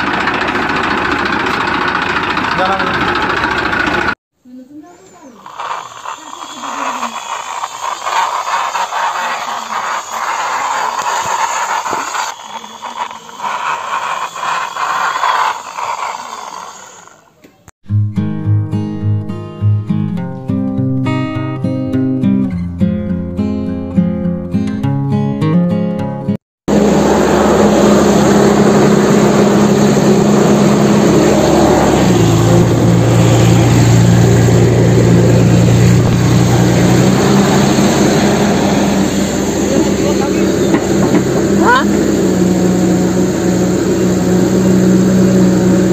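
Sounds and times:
diesel engine running: 0.0s - 4.2s, 5.2s - 17.2s, 26.7s - 45.9s
plastic toy rattling on concrete: 5.2s - 17.3s.

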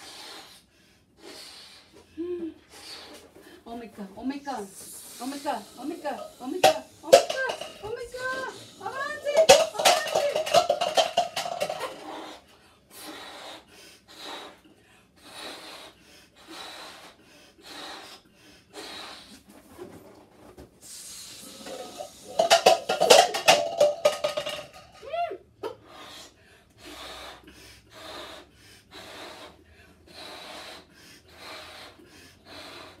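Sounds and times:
puffs of breath into balloon: 0.0s - 3.6s, 4.6s - 6.6s, 11.9s - 19.5s, 20.8s - 22.7s, 25.7s - 33.0s
woman's excited voice: 6.0s - 10.5s, 25.0s - 25.4s
breathy inhale: 25.8s - 33.0s.

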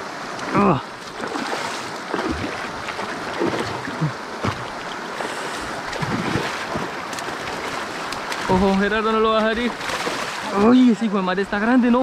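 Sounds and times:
river water rushing: 0.0s - 12.0s
fish thrashing and splashing: 1.0s - 10.6s.

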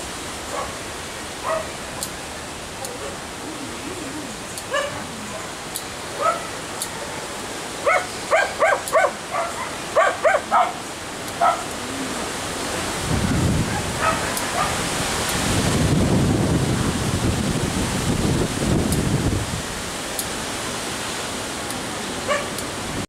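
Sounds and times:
dog barking: 0.5s - 0.8s, 1.4s - 1.8s, 2.8s - 3.2s, 4.7s - 5.6s, 6.2s - 7.2s, 7.8s - 10.8s, 11.4s - 11.7s, 13.6s - 14.9s, 22.2s - 22.6s.

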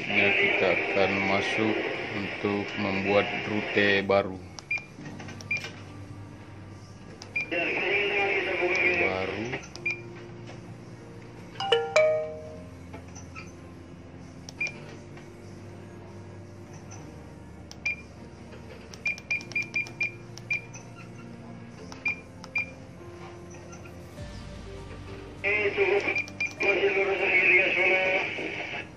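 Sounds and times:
soft background music: 0.0s - 28.9s
gps key-press beeps: 4.6s - 5.6s, 9.6s - 10.0s, 14.5s - 14.8s, 19.0s - 20.8s, 21.9s - 22.7s, 26.2s - 26.6s.

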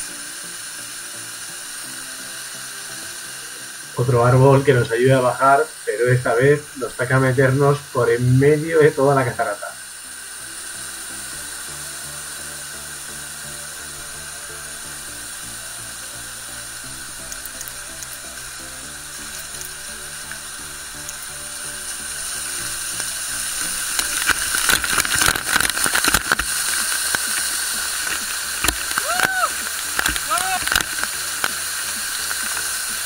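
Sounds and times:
slow held music chords: 0.0s - 33.0s
waterfall rushing: 0.0s - 33.0s
water splashing on camera: 23.0s - 33.0s.

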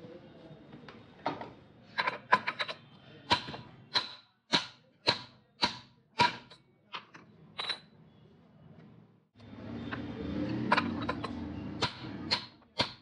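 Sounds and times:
hammer striking steel: 11.8s - 13.0s.

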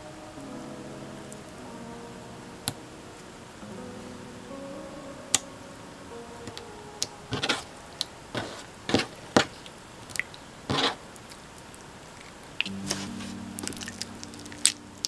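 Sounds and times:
faint music notes: 0.0s - 8.9s, 12.6s - 15.0s.

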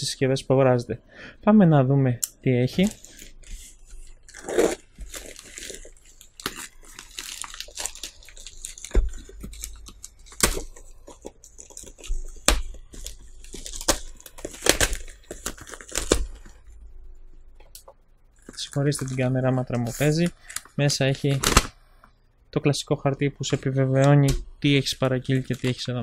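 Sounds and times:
plastic bag crinkling and tearing: 2.8s - 16.6s, 18.4s - 21.7s.

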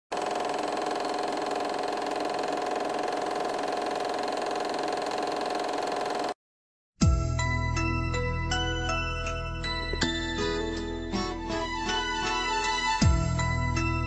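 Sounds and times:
film projector running: 0.1s - 6.4s.

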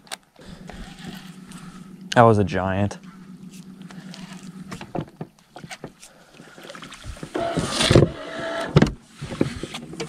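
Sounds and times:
electric motor whirring: 0.4s - 5.1s, 7.3s - 8.8s
knocks and handling noise: 3.4s - 6.1s.

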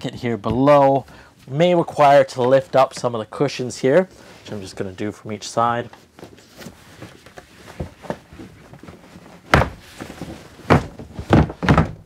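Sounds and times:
loud dull knocks of furniture: 9.4s - 12.0s.

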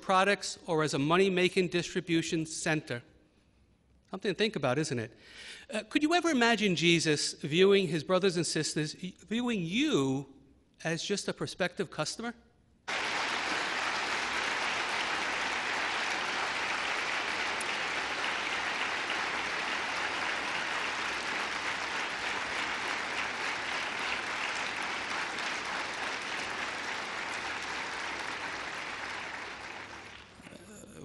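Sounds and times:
audience applauding: 12.9s - 30.5s.

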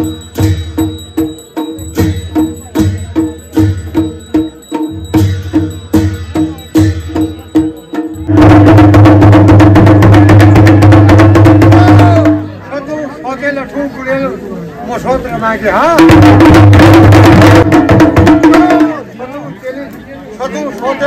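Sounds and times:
barrel drum beaten with sticks: 0.0s - 12.6s, 16.0s - 19.1s.

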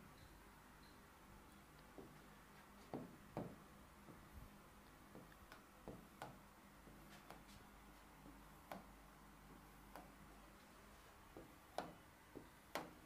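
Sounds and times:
stylus tapping on screen: 2.8s - 7.6s, 11.4s - 13.0s.

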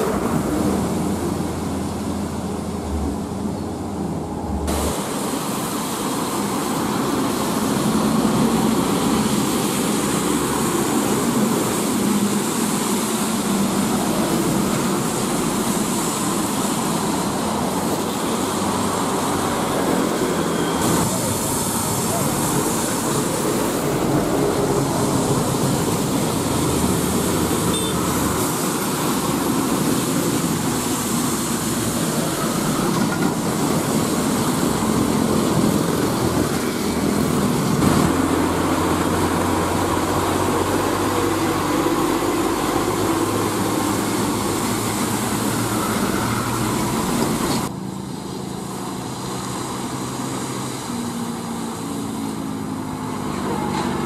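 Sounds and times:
diesel engine running: 0.0s - 5.3s
diesel trucks driving past: 0.0s - 54.0s
tyres hissing through water: 0.0s - 54.0s.

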